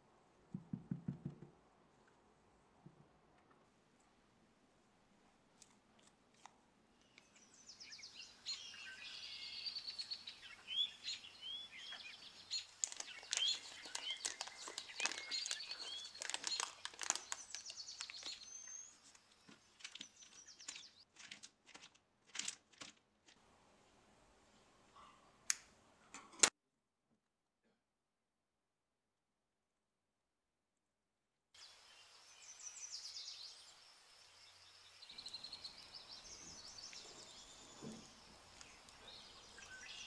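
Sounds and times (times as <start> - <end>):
small bird chirping: 6.4 - 21.1, 31.6 - 40.0
plastic bag crinkling: 12.6 - 18.6.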